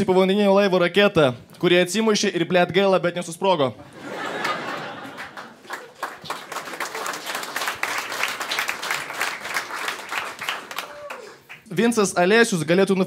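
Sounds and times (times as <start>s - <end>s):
audience clapping: 4.3s - 11.7s.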